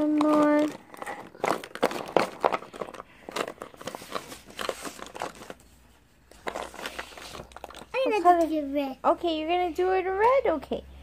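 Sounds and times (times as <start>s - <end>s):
paper scratching and crinkling: 0.0s - 5.7s, 6.3s - 8.2s.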